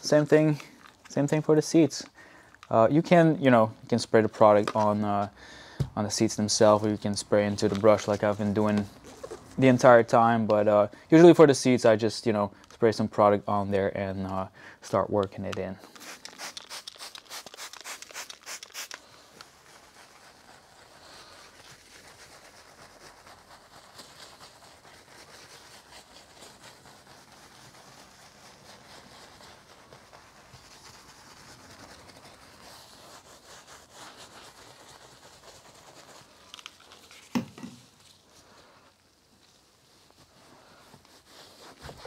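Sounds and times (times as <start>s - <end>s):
brush scrubbing leather seat: 19.6s - 36.5s, 40.0s - 42.0s.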